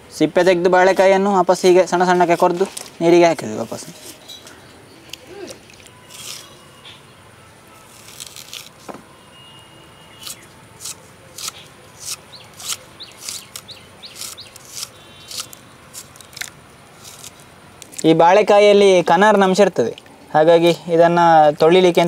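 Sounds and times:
blade cutting banana: 0:10.2 - 0:17.4.

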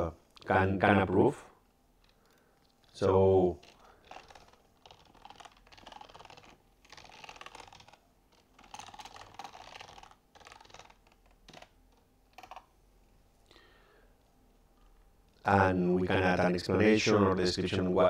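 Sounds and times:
typing on a computer keyboard: 0:03.6 - 0:11.7, 0:12.3 - 0:12.6.

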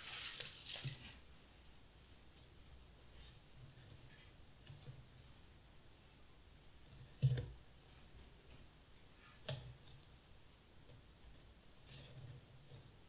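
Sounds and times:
soft rustle of grass stems: 0:00.0 - 0:01.7.

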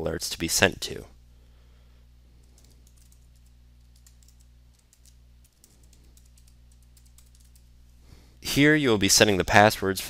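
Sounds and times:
steady low hum: 0:00.0 - 0:10.0
keyboard typing: 0:02.4 - 0:07.7.

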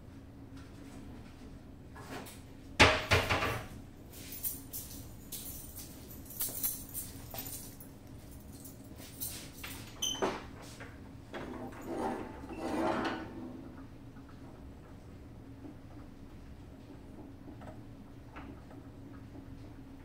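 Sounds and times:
metal parts clinking and rattling: 0:04.2 - 0:10.0.

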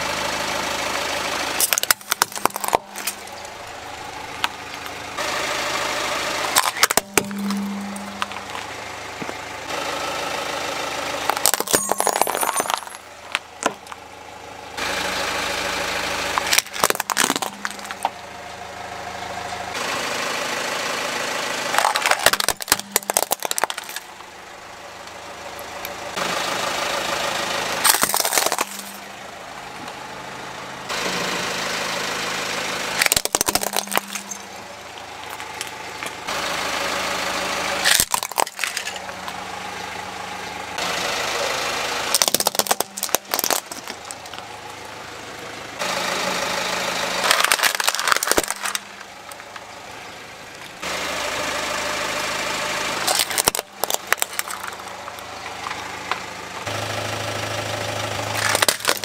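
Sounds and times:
car engine idling: 0:00.0 - 0:59.0
tyre crushing plastic toys: 0:01.6 - 0:03.5, 0:06.5 - 0:09.4, 0:11.3 - 0:14.0, 0:16.4 - 0:18.2, 0:21.7 - 0:24.2, 0:27.8 - 0:29.0, 0:33.0 - 0:34.5, 0:37.8 - 0:39.4, 0:42.1 - 0:44.4, 0:47.2 - 0:49.5, 0:53.1 - 0:56.2, 0:58.4 - 0:59.0.

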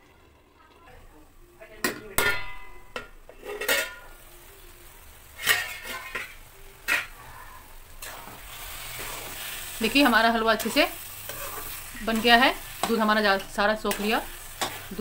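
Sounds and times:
metal lid clanking on pan: 0:01.8 - 0:04.1, 0:05.4 - 0:07.1.

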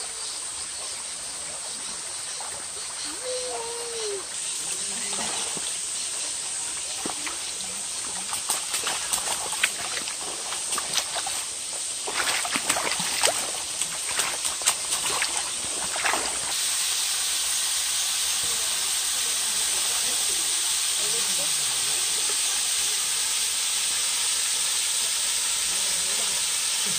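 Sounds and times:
flowing water rushing: 0:00.0 - 0:26.9
feet splashing through stream: 0:04.0 - 0:16.6.

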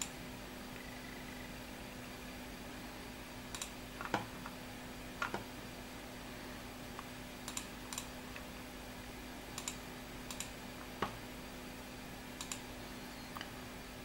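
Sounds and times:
faint steady hum: 0:00.0 - 0:14.0
computer mouse buttons clicking: 0:03.5 - 0:04.3, 0:07.5 - 0:08.1, 0:09.6 - 0:10.5, 0:12.4 - 0:12.6.

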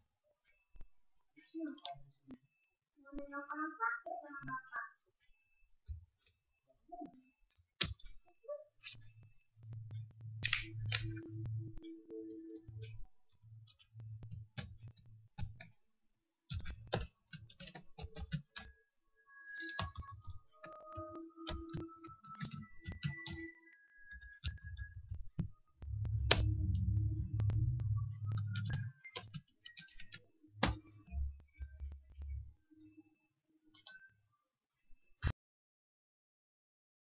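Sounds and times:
keyboard and mouse clicking: 0:08.8 - 0:15.8, 0:16.5 - 0:18.8, 0:19.5 - 0:32.4, 0:33.7 - 0:34.0
low rumble: 0:25.8 - 0:28.9.

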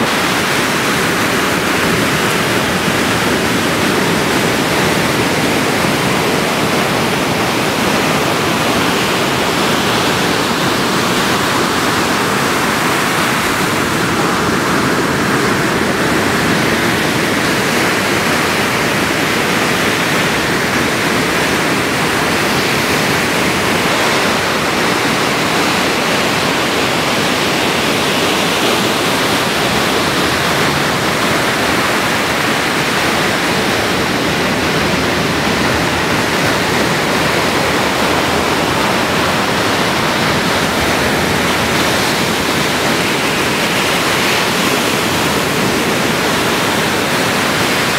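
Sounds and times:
ocean surf breaking: 0:00.0 - 0:47.9.

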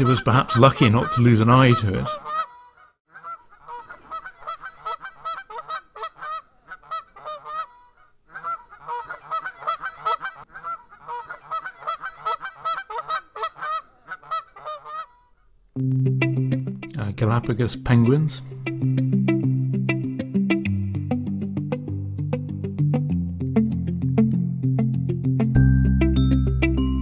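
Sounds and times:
seabirds honking calls: 0:00.0 - 0:15.3
music: 0:15.8 - 0:27.0.

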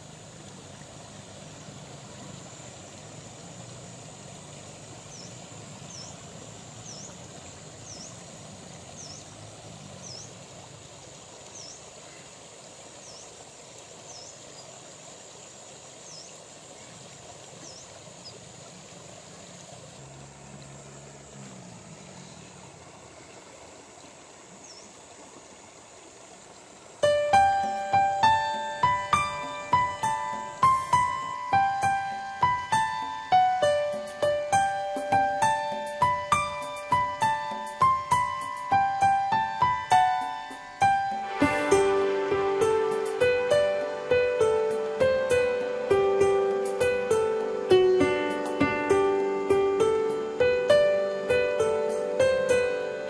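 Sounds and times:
steady hiss: 0:00.0 - 0:53.0
small bird chirping: 0:04.9 - 0:08.3, 0:08.9 - 0:09.4, 0:10.0 - 0:10.4, 0:11.5 - 0:12.4, 0:14.0 - 0:14.7, 0:16.0 - 0:17.0, 0:17.6 - 0:18.4, 0:24.6 - 0:25.0
distant motorbike engine humming: 0:19.4 - 0:23.6.

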